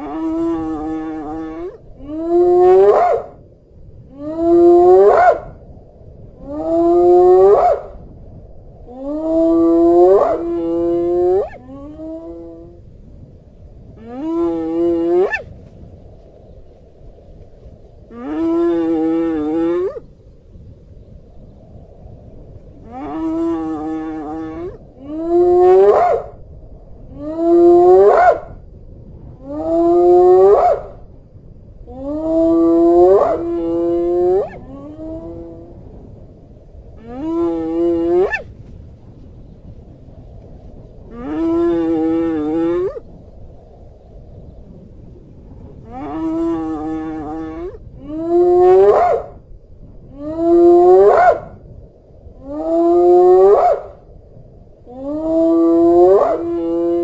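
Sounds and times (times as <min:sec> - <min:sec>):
hyena whoop calls: 0:00.0 - 0:03.4, 0:04.3 - 0:05.5, 0:06.5 - 0:07.9, 0:09.0 - 0:12.6, 0:14.2 - 0:15.5, 0:24.0 - 0:26.4, 0:27.2 - 0:28.6, 0:29.5 - 0:30.9, 0:32.0 - 0:35.8, 0:37.2 - 0:38.5, 0:45.9 - 0:49.4, 0:50.2 - 0:51.6, 0:52.5 - 0:54.0, 0:55.0 - 0:57.0.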